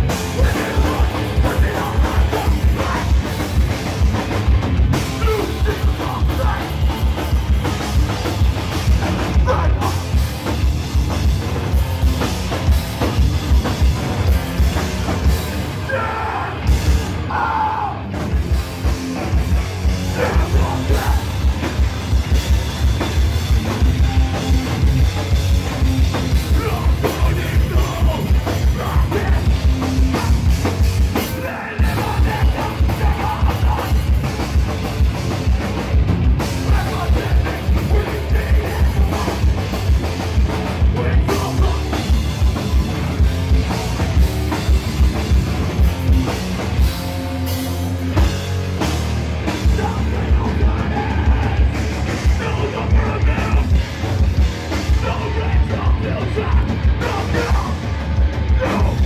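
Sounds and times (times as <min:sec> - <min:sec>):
hardcore band playing loud: 0:00.0 - 0:59.0.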